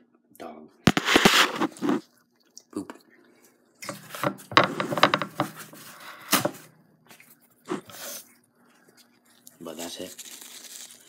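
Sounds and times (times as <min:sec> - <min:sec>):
handling rustling and scraping: 0:00.9 - 0:02.1, 0:03.9 - 0:06.7.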